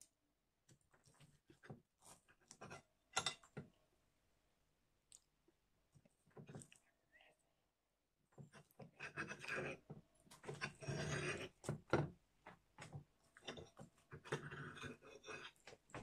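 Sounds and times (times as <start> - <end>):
knife and fork cutting flatbread: 8.4 - 12.0.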